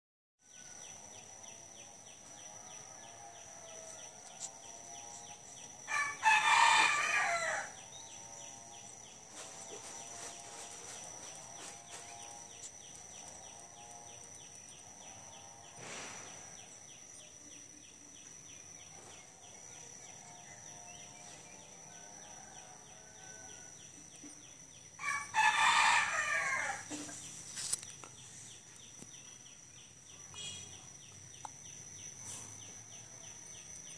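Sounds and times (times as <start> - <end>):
rooster crowing: 2.3 - 4.5, 5.8 - 8.0, 21.7 - 23.8, 25.0 - 27.1.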